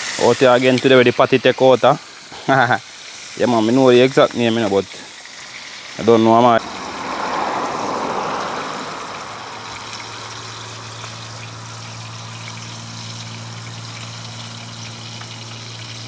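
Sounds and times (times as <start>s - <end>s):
fish sizzling in hot oil: 0.0s - 16.0s
low hum: 6.6s - 16.0s.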